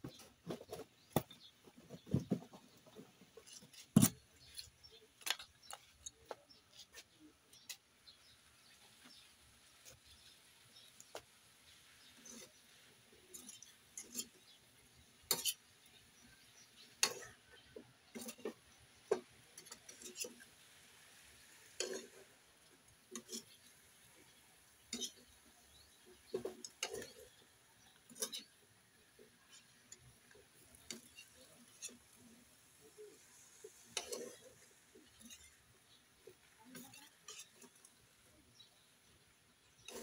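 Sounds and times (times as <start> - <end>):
spatula scraping a wok: 11.7 - 40.0.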